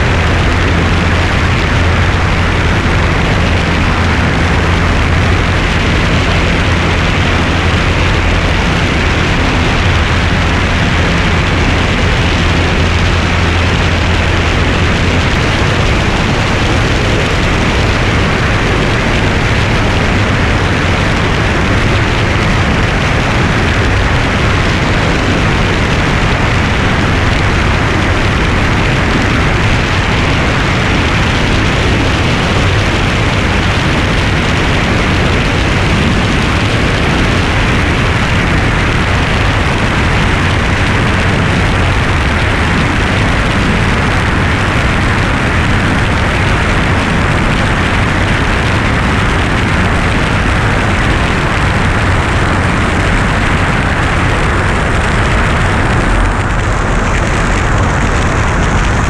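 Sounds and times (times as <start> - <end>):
propeller airplane engine drone: 0.0 - 59.0
wind rushing: 0.0 - 59.0.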